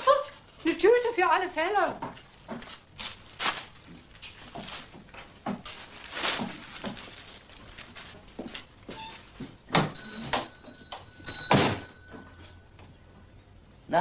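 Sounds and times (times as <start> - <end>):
bag rustling and crinkling: 1.7 - 9.7.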